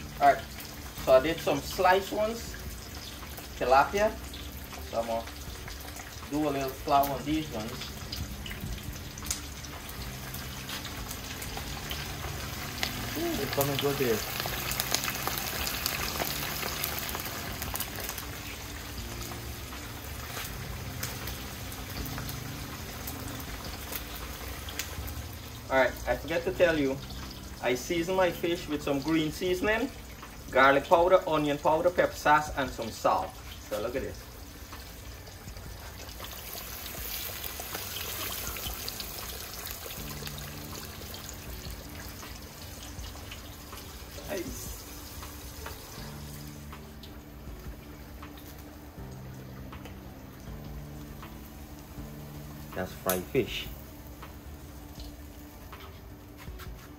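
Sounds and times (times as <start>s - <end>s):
fish deep-frying in oil: 0.0s - 56.9s
small crackles of oil: 9.2s - 22.3s.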